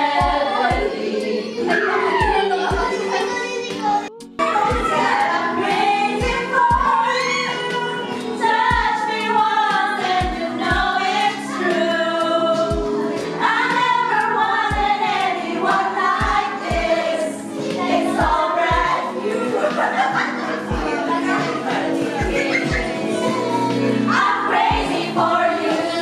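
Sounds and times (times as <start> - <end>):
voices singing together: 0.0 - 26.0.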